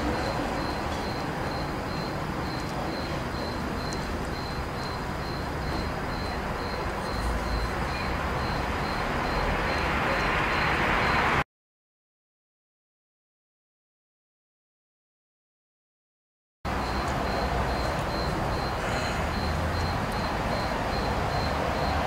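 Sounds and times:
faint high chirp: 0.1s - 11.3s.

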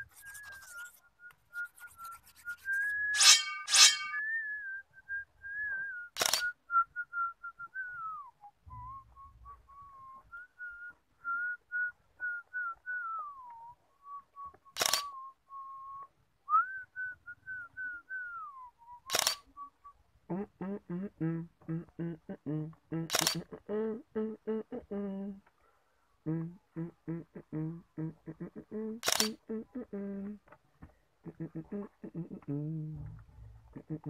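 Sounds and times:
person whistling a slow tune: 0.0s - 22.1s
sharp clicks: 6.2s - 6.5s, 14.7s - 15.2s, 19.1s - 19.5s, 23.0s - 23.5s, 29.0s - 29.4s.

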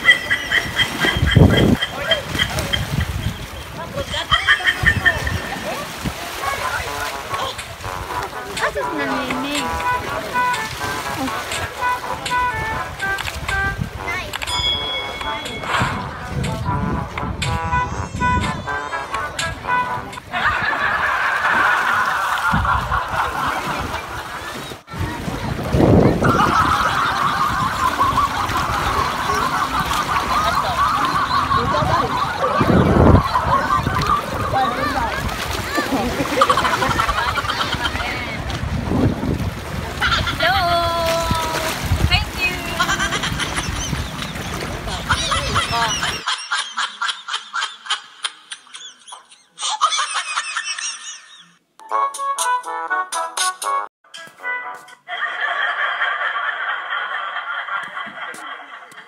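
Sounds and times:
small waves washing in: 0.0s - 14.3s, 20.6s - 46.2s
wind buffeting microphone: 0.0s - 46.2s
instrumental music: 7.0s - 20.4s, 51.8s - 55.1s
distant voices: 18.9s - 38.8s
high-pitched laughter: 26.1s - 38.4s, 39.9s - 41.6s, 42.5s - 51.6s, 55.0s - 59.0s.

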